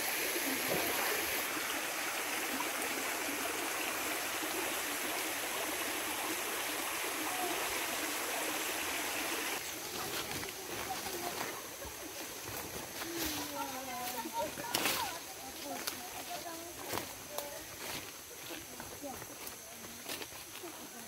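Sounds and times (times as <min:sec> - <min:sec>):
stream rushing: 0:00.0 - 0:13.0.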